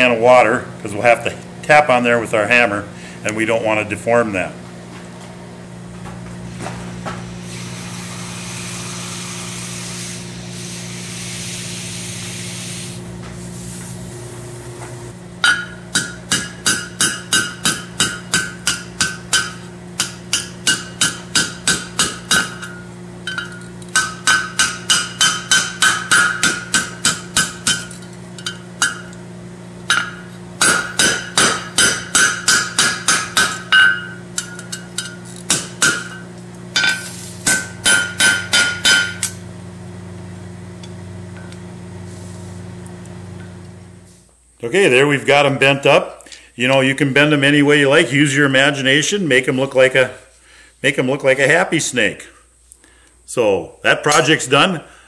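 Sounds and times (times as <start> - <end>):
hammer striking metal on anvil: 15.4 - 29.2, 29.9 - 36.2, 36.8 - 39.4.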